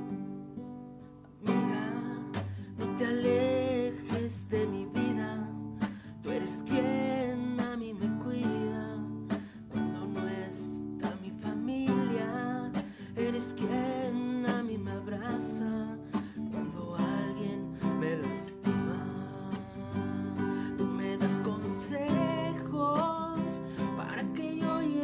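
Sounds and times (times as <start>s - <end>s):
strummed acoustic guitar: 0.0s - 25.0s.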